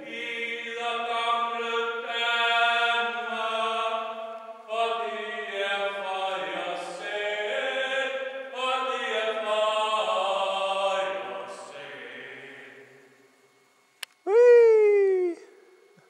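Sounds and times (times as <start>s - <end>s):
person singing unaccompanied: 0.0s - 4.1s.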